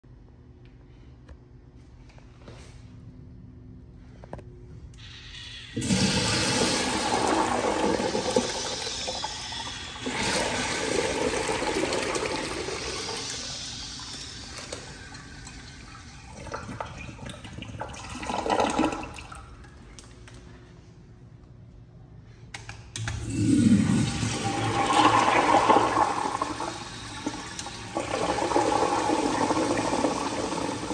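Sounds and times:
urinal flushing: 5.0s - 20.4s, 23.0s - 30.9s.

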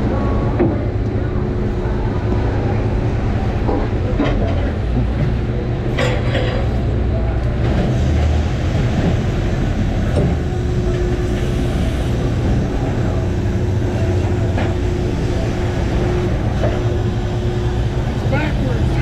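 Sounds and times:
boat engine rumble: 0.0s - 19.0s
hydraulic whine: 7.7s - 19.0s.

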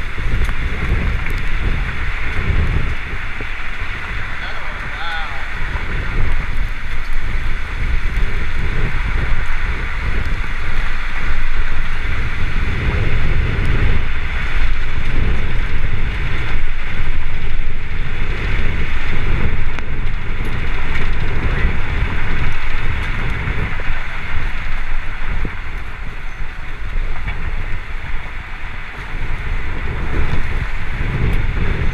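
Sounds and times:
gusty wind buffeting microphone: 0.0s - 31.9s.

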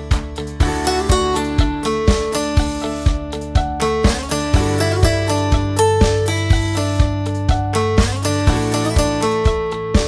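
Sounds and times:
steady beat: 0.0s - 10.0s
strummed guitar: 0.0s - 10.0s.

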